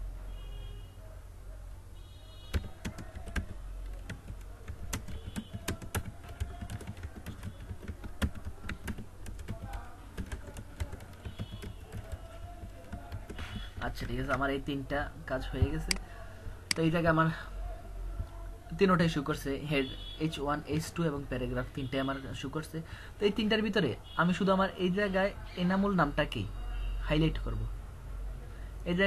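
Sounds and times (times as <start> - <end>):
keyboard key clicks: 15.7 - 16.0.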